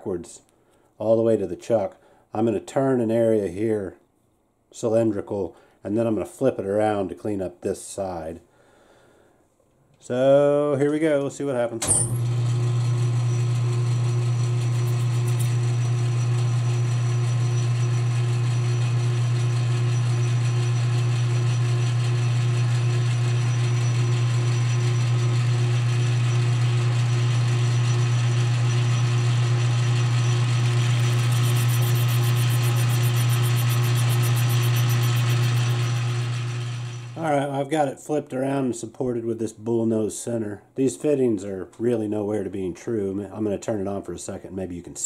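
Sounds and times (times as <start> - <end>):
low motor hum: 12.0 - 24.3, 27.4 - 37.2
metal lathe running: 12.1 - 25.1, 27.9 - 37.2
rapid high ticking: 31.0 - 36.2.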